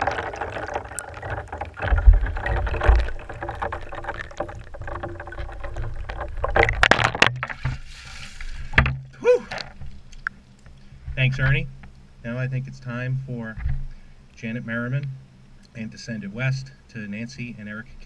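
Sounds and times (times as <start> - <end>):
water pouring out splash: 0.0 - 8.8
ice and water sloshing in bucket: 0.0 - 8.9.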